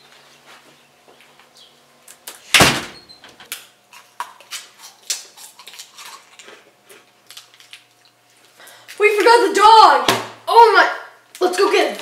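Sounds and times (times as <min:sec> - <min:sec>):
front door slamming: 0:02.5 - 0:03.4.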